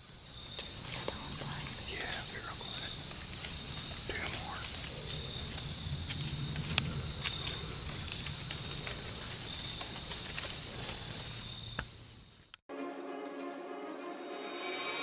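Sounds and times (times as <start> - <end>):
high-pitched insect chorus: 0.0 - 12.5.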